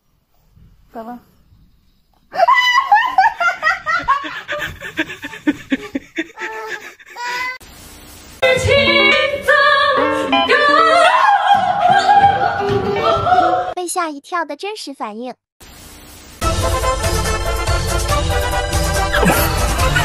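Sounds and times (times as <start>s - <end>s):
child giggling and laughing: 2.4s - 7.6s.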